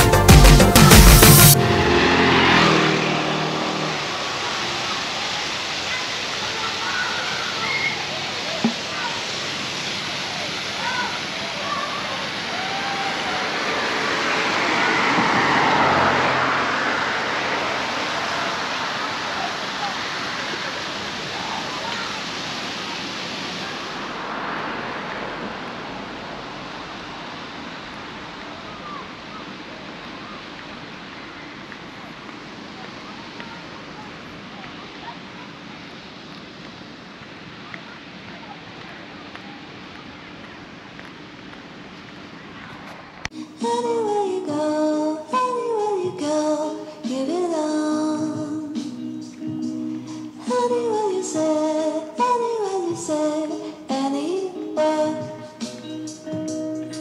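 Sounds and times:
intro music: 0.0 - 5.1, 48.3 - 50.4
rushing outdoor noise: 0.0 - 57.0
wind rushing over microphone: 12.7 - 21.7, 22.8 - 29.0.

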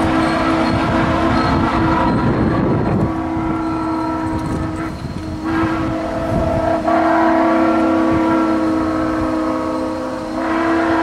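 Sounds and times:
steam locomotive whistle: 0.0 - 11.0
train rumble: 0.0 - 11.0.

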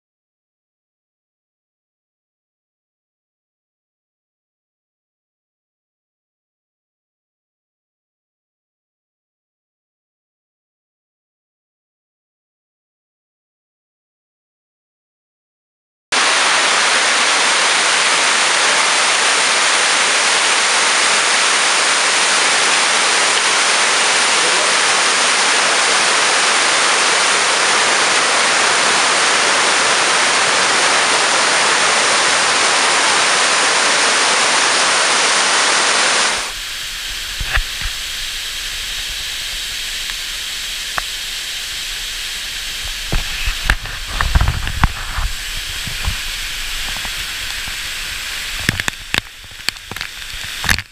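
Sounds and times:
water rushing over dam: 16.2 - 50.9.

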